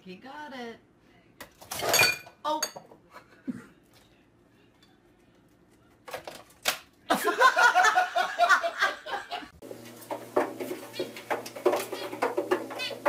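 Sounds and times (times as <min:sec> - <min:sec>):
people laughing: 0:07.1 - 0:09.6.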